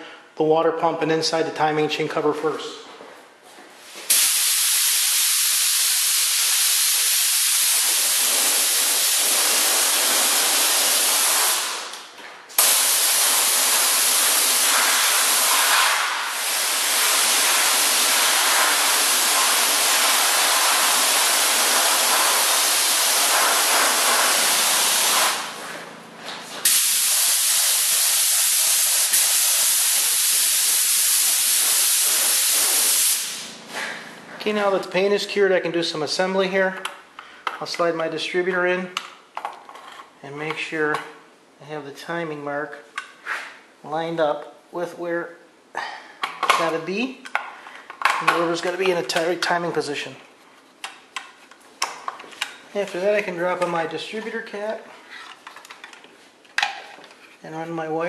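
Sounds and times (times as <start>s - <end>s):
spray gun hissing: 4.1s - 11.9s, 12.6s - 25.8s, 26.6s - 33.6s.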